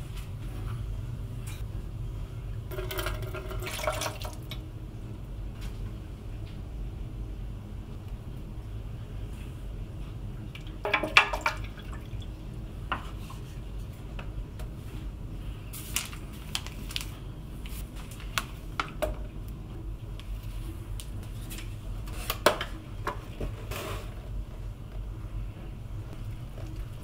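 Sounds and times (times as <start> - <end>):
steady low hum: 0.0 - 27.0
water pouring into plastic container: 2.7 - 4.6.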